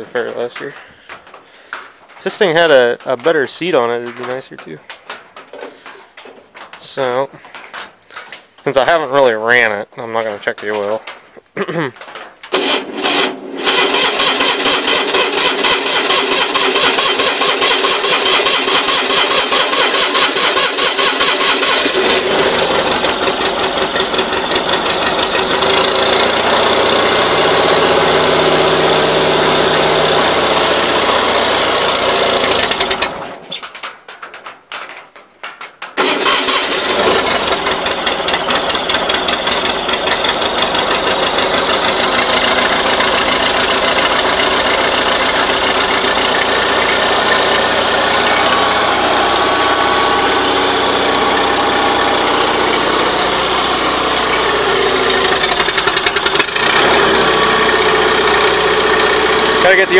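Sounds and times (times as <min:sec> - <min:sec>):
starter cranking engine: 0:12.0 - 0:33.5, 0:36.0 - 0:59.9.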